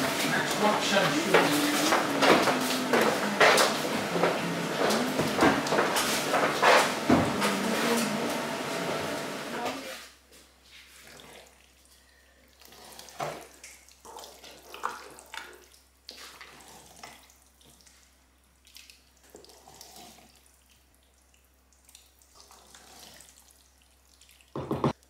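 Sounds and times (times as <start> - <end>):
wooden spoon stirring thick pasta: 0.0 - 9.5.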